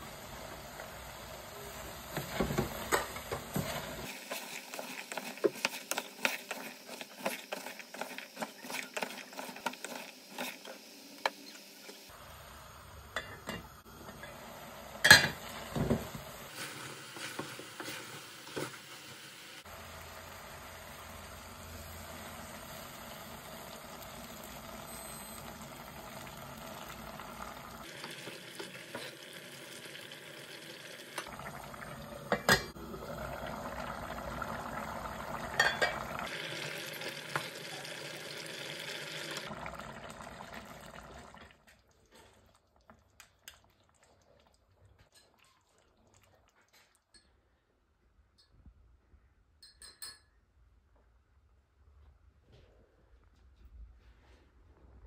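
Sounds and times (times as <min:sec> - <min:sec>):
curry sizzling in saucepan: 0:00.0 - 0:41.4
wooden spoon stirring: 0:03.6 - 0:10.8, 0:16.5 - 0:18.8.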